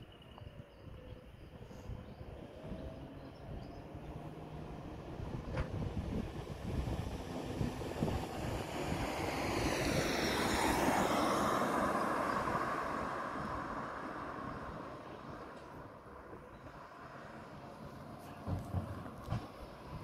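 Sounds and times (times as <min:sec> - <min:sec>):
garbage truck diesel engine rumble: 0:00.1 - 0:09.4
car driving past: 0:01.8 - 0:20.0.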